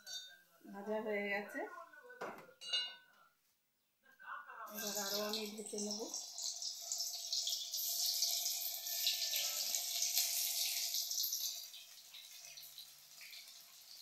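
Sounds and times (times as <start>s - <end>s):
egg sizzling in hot oil: 4.7s - 14.0s.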